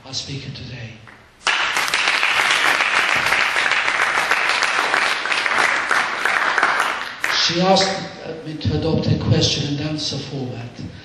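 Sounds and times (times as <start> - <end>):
audience applauding: 1.4 - 8.0.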